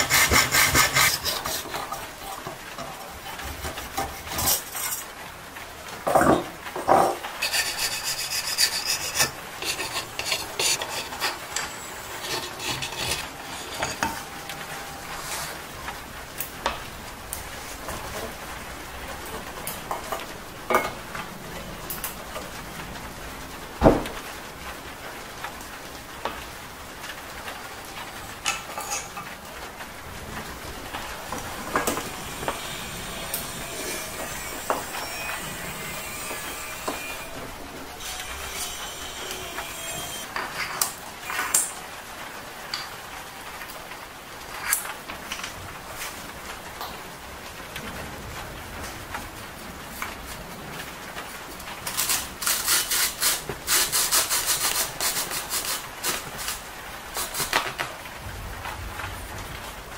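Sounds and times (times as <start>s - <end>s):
tools rubbing and scraping: 0.0s - 5.1s, 7.0s - 15.7s, 28.3s - 29.3s, 30.8s - 41.7s, 51.9s - 56.6s.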